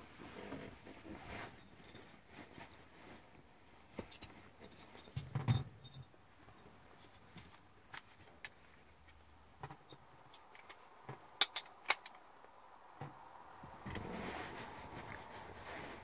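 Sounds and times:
rustling: 0.0 - 5.4, 13.1 - 16.0.

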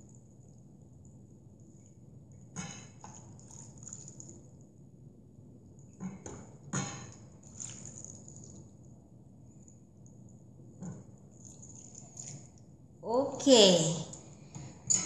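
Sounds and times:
liquid pouring and splashing: 2.6 - 4.6, 6.8 - 9.0, 10.9 - 12.8.

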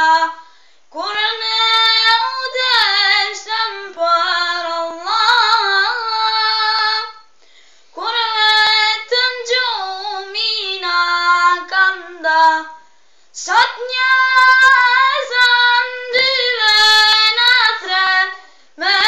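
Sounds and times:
person singing unaccompanied: 0.0 - 7.3, 8.0 - 12.8, 13.4 - 19.0.

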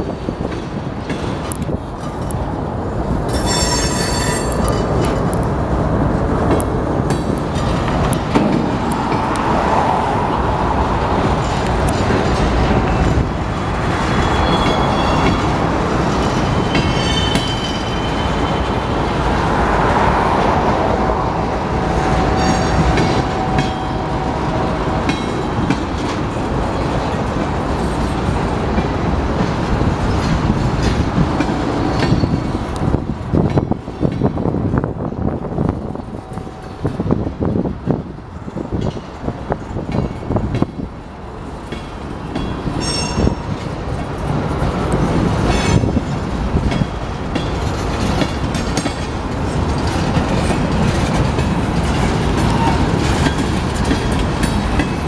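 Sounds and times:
freight train wheels rumbling: 0.0 - 55.0
train wheel clacks: 25.0 - 34.5, 41.6 - 55.0.

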